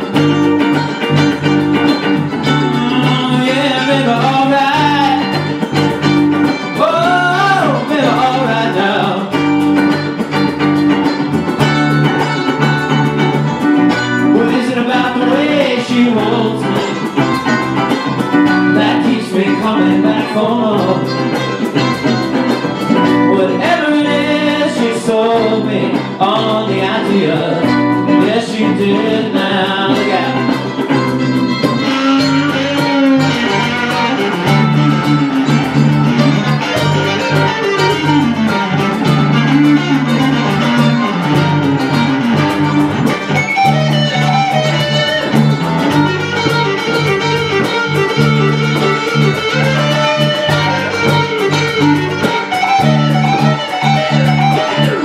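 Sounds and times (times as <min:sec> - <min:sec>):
live band playing: 0:00.0 - 0:55.0
low bass line: 0:00.0 - 0:55.0
man singing: 0:02.4 - 0:05.8, 0:06.4 - 0:09.7, 0:14.2 - 0:17.5, 0:18.4 - 0:21.6, 0:22.9 - 0:30.8, 0:31.7 - 0:42.0.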